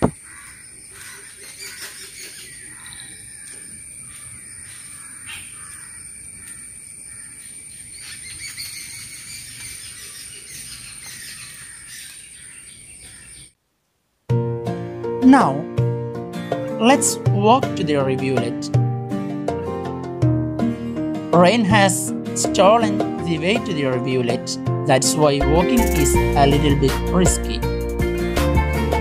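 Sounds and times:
birds chirping: 0:00.0 - 0:13.6.

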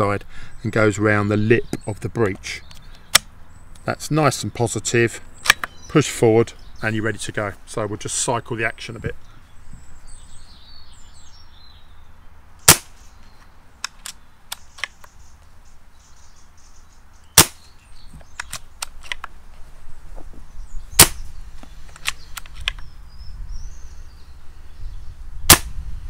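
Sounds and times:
air rifle shots: 0:12.6 - 0:13.0, 0:17.4 - 0:17.7, 0:20.9 - 0:21.3, 0:25.4 - 0:25.8
rifle bolt clicks: 0:18.4 - 0:19.3, 0:21.9 - 0:22.8.

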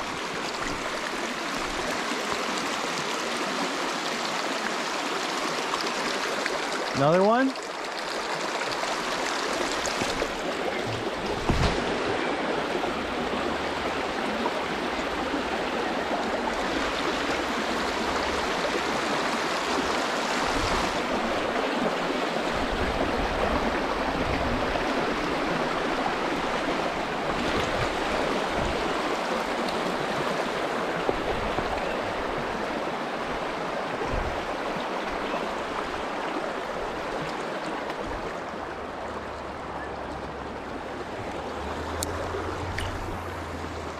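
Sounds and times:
river rapids rushing over boulders: 0:00.0 - 0:43.9.

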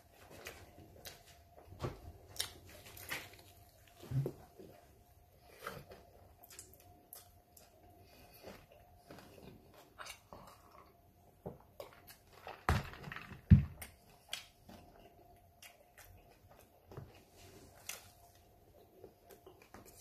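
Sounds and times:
person chewing: 0:02.2 - 0:11.0, 0:13.8 - 0:20.0.

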